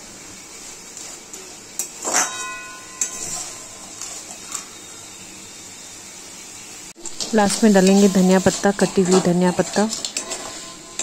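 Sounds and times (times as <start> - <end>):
pan ringing: 2.0 - 5.4
metal spatula scraping a pan: 7.2 - 11.0.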